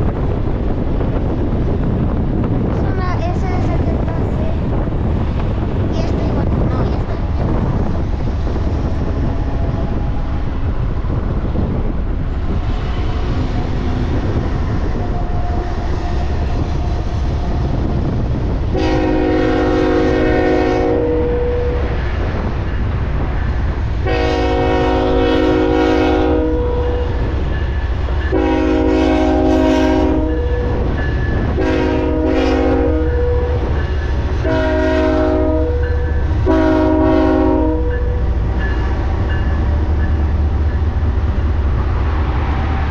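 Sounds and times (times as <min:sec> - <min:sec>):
locomotive low rumble: 0:00.0 - 0:42.9
locomotive air horn blasts: 0:18.7 - 0:21.9, 0:24.0 - 0:27.2, 0:28.3 - 0:30.8, 0:31.6 - 0:33.6, 0:34.4 - 0:38.2.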